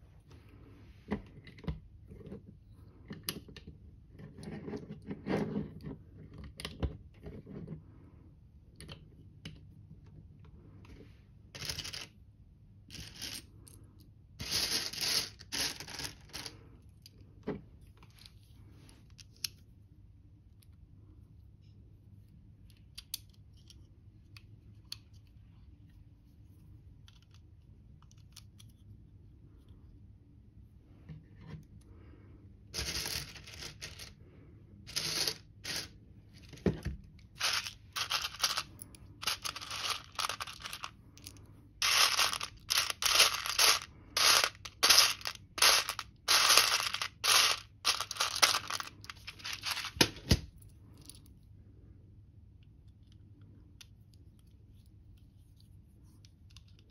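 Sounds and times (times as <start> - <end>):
plastic bricks rattling in metal tin: 37.4 - 40.9, 41.8 - 50.2.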